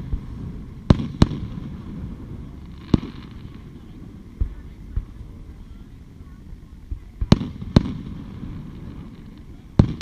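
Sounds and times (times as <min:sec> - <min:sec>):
fireworks bursting bangs: 0:00.0 - 0:10.0.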